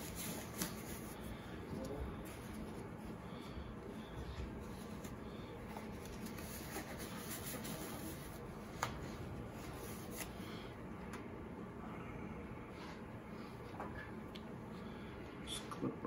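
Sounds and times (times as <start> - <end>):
gloves rubbing and rustling: 0.0 - 10.8
low room noise: 0.0 - 16.0.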